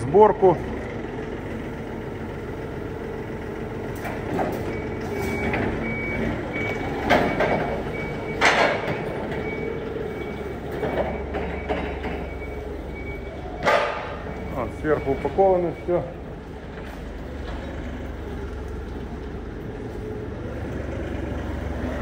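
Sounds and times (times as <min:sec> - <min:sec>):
engine running: 0:00.0 - 0:22.0
reversing alarm beeping: 0:04.6 - 0:16.3
knocks and clatters: 0:07.0 - 0:09.6, 0:10.7 - 0:12.5.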